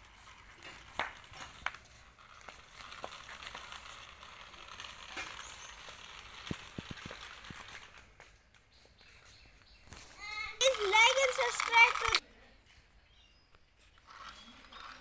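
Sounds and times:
toy loader motor rasping: 0:00.0 - 0:08.1, 0:10.6 - 0:12.2, 0:14.0 - 0:15.0
sharp clicks: 0:10.6 - 0:12.2.

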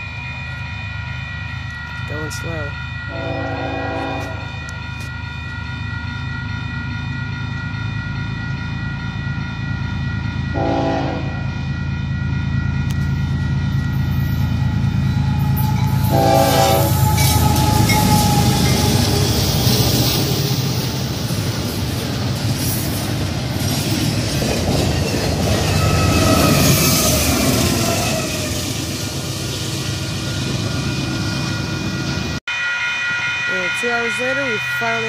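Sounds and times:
crossing bell ringing: 0:00.0 - 0:35.0
train rumble and wheel noise: 0:00.0 - 0:35.0
train horn blasts: 0:03.1 - 0:04.5, 0:10.5 - 0:11.5, 0:15.4 - 0:19.1
train cars clickety-clack: 0:12.8 - 0:32.4.

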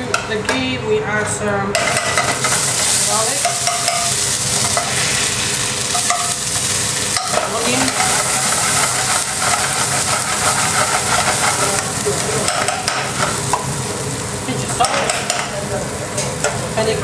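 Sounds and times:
spoon stirring in a pan: 0:01.7 - 0:05.1, 0:05.8 - 0:13.8
garlic sizzling in a pan: 0:01.7 - 0:17.0.

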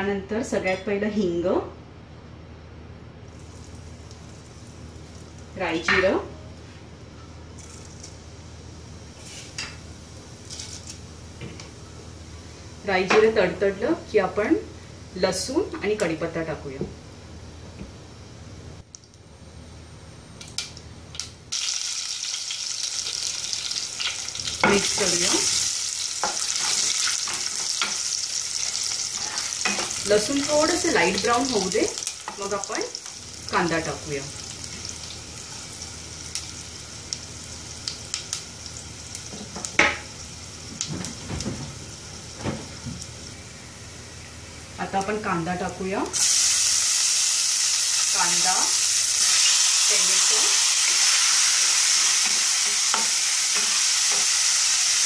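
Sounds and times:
seeds crackling in hot oil: 0:03.2 - 0:05.7, 0:07.6 - 0:11.2, 0:20.4 - 0:41.2, 0:42.0 - 0:55.0
loud sizzle in oil: 0:03.2 - 0:06.2, 0:07.6 - 0:13.8, 0:20.4 - 0:55.0.

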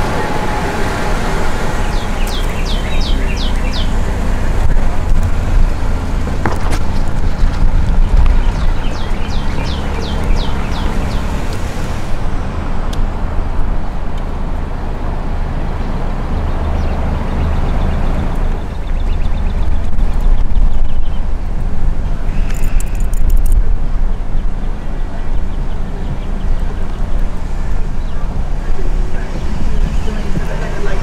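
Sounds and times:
car rumble with road noise: 0:00.0 - 0:31.0
bird chirping: 0:01.6 - 0:05.0, 0:06.9 - 0:11.6, 0:15.9 - 0:21.4.

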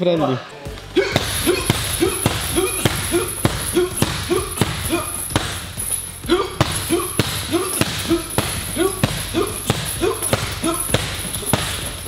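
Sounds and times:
person grunting: 0:00.9 - 0:05.3, 0:06.2 - 0:11.1
strikes thudding on punching bag: 0:01.0 - 0:05.8, 0:06.6 - 0:12.0.

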